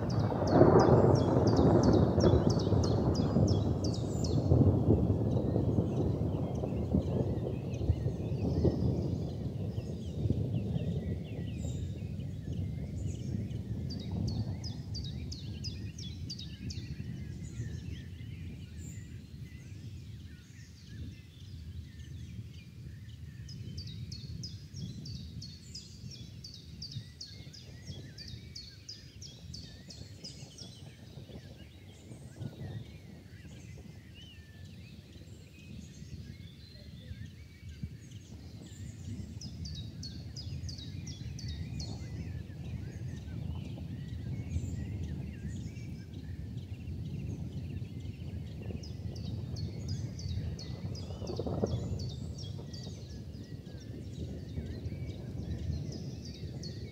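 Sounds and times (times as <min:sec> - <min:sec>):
thunder rumbling: 0:00.0 - 0:56.9.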